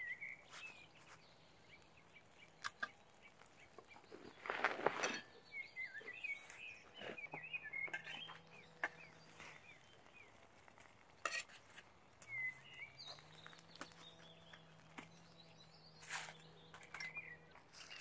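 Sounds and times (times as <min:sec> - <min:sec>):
birds chirping: 0:00.0 - 0:18.0
foil packet crinkling and scraping: 0:04.0 - 0:05.4.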